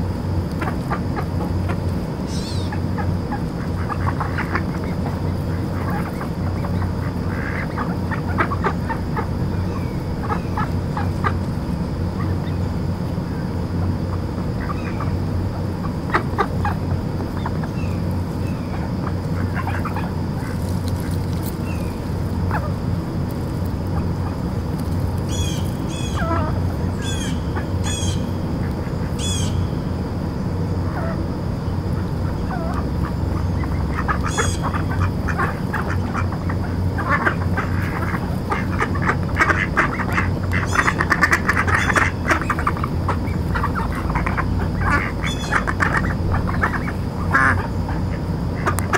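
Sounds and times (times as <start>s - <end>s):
ducks quacking: 0.2s - 29.7s, 31.8s - 48.9s.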